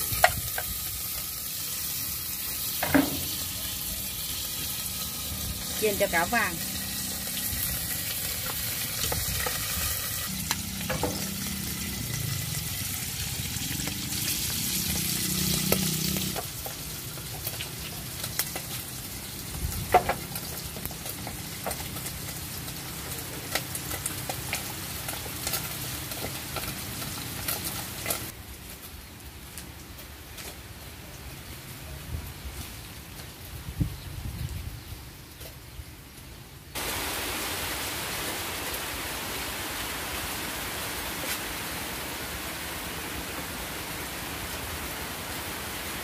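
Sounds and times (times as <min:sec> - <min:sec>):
fish sizzling in hot oil: 0:00.0 - 0:28.4.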